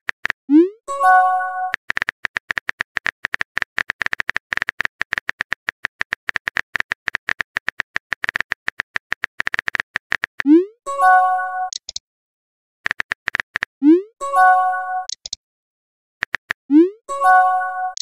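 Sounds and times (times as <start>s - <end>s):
message alert chime: 0.6s - 1.7s, 16.7s - 18.0s
phone keyboard tapping clicks: 1.6s - 10.5s, 12.9s - 13.7s, 15.1s - 15.4s, 16.2s - 16.6s.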